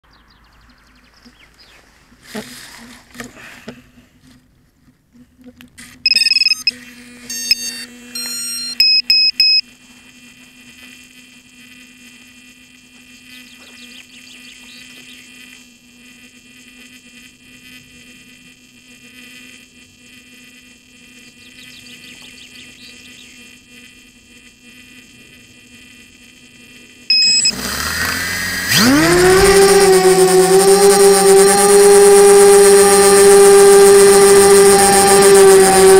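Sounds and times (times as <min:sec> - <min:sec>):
faint steady hum: 0:00.1 - 0:35.9
drone motors whining: 0:05.4 - 0:35.9
short electronic beeps: 0:06.0 - 0:09.6, 0:27.1 - 0:27.6.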